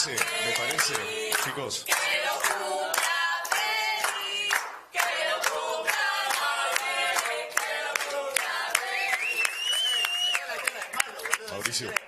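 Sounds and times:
group singing a chant: 0.0s - 9.5s
rhythmic clapping: 0.0s - 12.0s.

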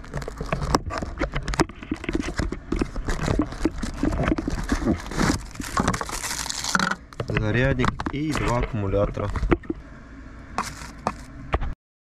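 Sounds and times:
plastic crinkling: 0.0s - 9.8s, 10.6s - 11.3s.

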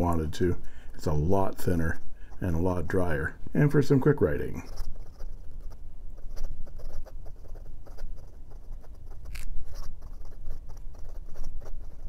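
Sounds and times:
pen nib scratching paper: 3.8s - 12.0s.

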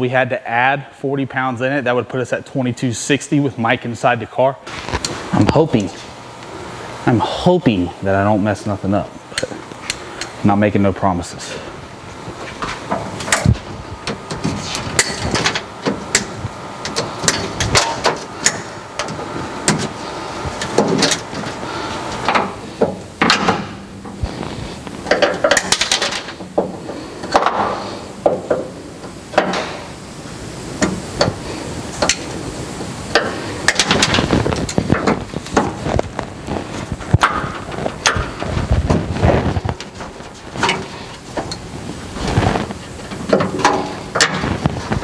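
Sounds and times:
scraping and rustling: 23.6s - 28.1s, 33.3s - 45.0s.

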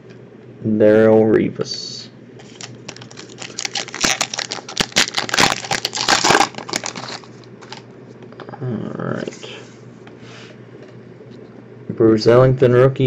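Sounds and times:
foil wrapper crinkling and tearing: 2.4s - 7.9s.

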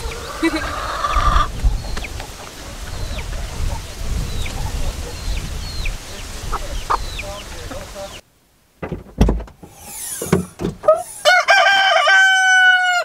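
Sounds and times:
chicken squawk: 0.0s - 1.6s, 2.6s - 7.4s, 9.7s - 13.0s
chickens clucking: 0.0s - 8.2s.

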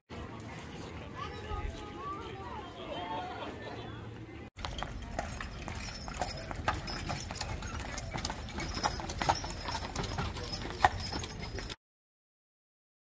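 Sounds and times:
horse hooves clip-clopping on asphalt: 4.6s - 11.8s.

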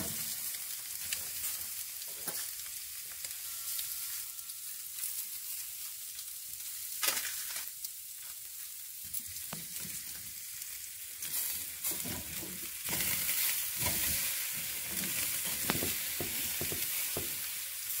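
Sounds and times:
meat sizzling on grill: 0.0s - 18.0s
clicks and knocks on grate: 11.8s - 13.2s, 13.8s - 17.4s.

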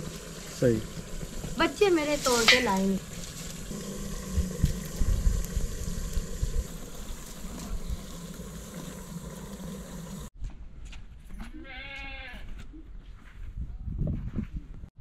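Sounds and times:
okra frying hiss: 0.0s - 10.3s
livestock bleat: 11.5s - 12.5s.

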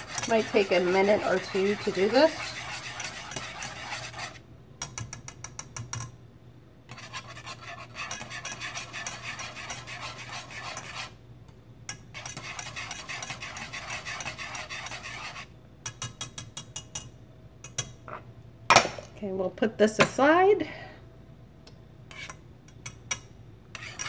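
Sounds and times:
whisk scraping metal saucepan: 0.0s - 4.4s, 6.9s - 11.2s, 12.1s - 15.5s, 22.1s - 22.4s, 23.7s - 24.0s.

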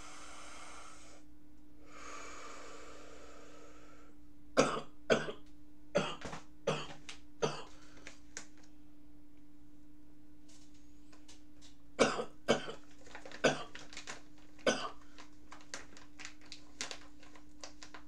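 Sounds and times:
man breathing out heavily: 0.0s - 1.2s, 1.8s - 4.2s
steady low hum: 0.0s - 18.0s
man coughing: 4.6s - 5.4s, 6.0s - 7.7s.

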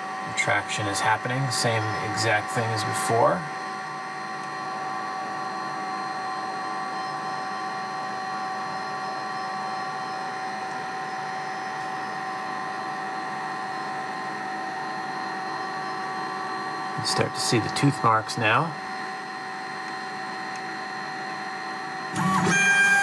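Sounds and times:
three d printer humming: 0.0s - 23.0s
high whining tones: 8.6s - 23.0s.

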